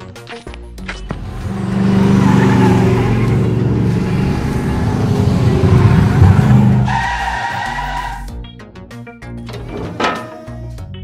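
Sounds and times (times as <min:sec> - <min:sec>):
sports car engine revving past: 0:01.2 - 0:06.9.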